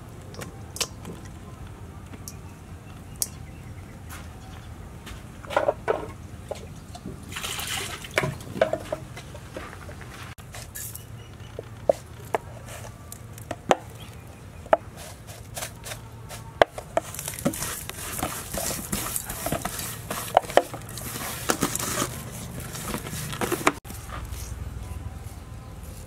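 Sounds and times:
gritty powder rustle: 14.9 - 26.0.

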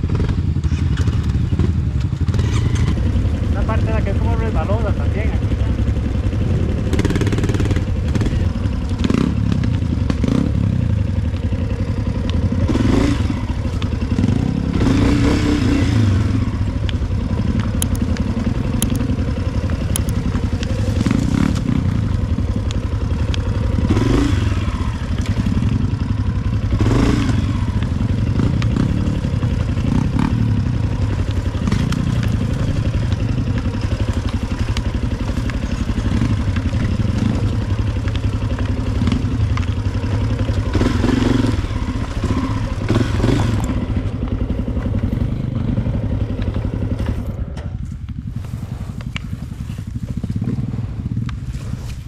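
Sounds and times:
dirt bike engine running: 0.0 - 52.0
bike clattering over rough ground: 16.8 - 48.4.

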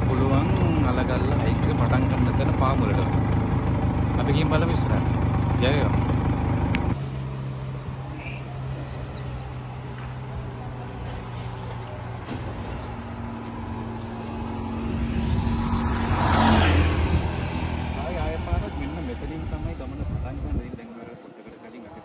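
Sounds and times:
motor scooter engine running: 0.0 - 7.0.

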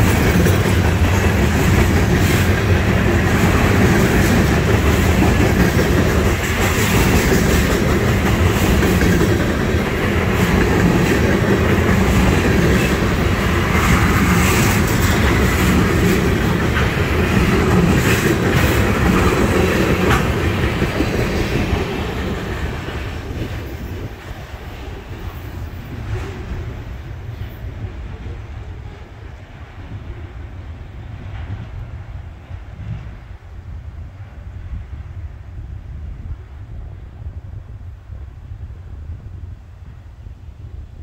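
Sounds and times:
wheels clicking on rail joints: 0.0 - 28.3
train wheels on rails: 0.0 - 41.0.

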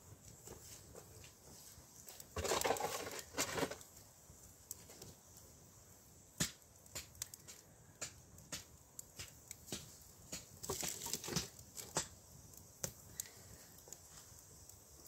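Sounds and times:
wood fire crackling: 0.0 - 15.0
log pushed into stove: 2.0 - 3.9, 6.4 - 12.2.

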